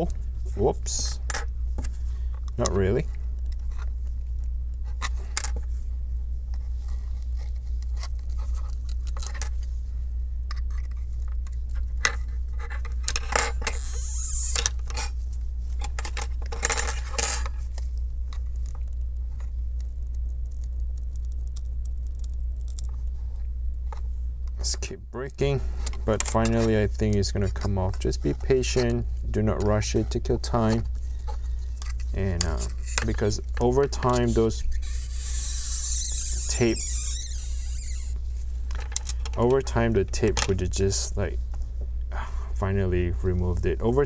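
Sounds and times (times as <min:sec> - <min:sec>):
steady low hum: 0:00.0 - 0:44.0
scraping rasps: 0:25.5 - 0:38.2.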